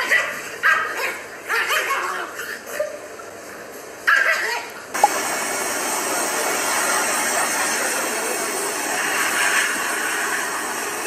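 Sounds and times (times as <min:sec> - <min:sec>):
blow dryer blowing air: 0:05.0 - 0:11.0.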